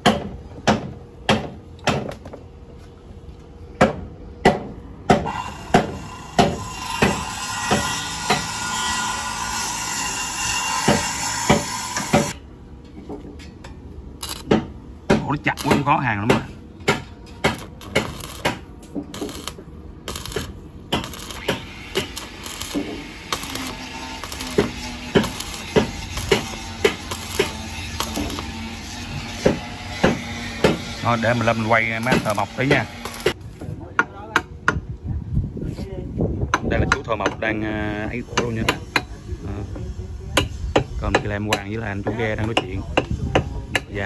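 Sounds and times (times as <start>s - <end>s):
hammer striking metal: 3.8s - 12.4s, 13.4s - 33.4s.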